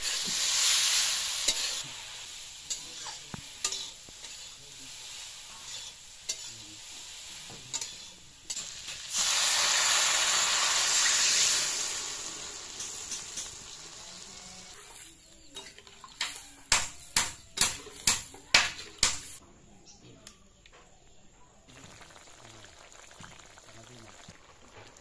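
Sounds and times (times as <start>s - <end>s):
water hissing in hot pan: 0.0s - 15.0s, 21.7s - 25.0s
vegetables frying in hot oil: 0.0s - 15.4s, 21.7s - 25.0s
metal spatula scraping pan: 5.5s - 6.6s, 7.7s - 8.8s.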